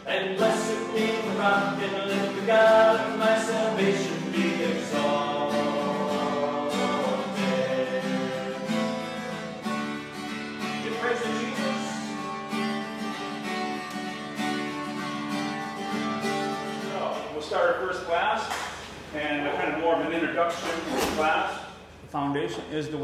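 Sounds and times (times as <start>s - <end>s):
acoustic guitar strumming: 0.0s - 17.5s.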